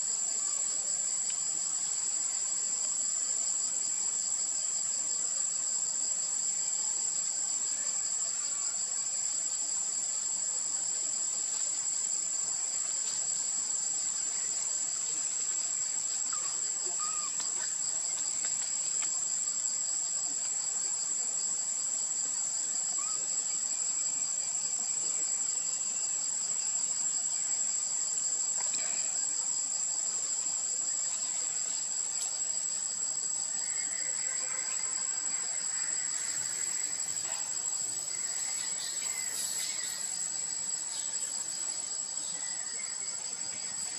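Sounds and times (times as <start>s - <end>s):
insects chorus shrilling: 16.1s - 18.4s, 33.4s - 43.9s.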